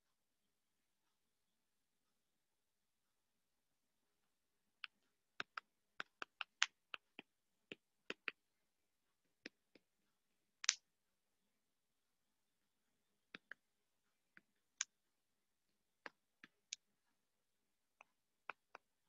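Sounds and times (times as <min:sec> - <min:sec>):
stylus tapping on tablet: 0:04.8 - 0:08.4, 0:09.4 - 0:09.9, 0:13.3 - 0:13.7, 0:16.0 - 0:16.9, 0:17.9 - 0:19.0.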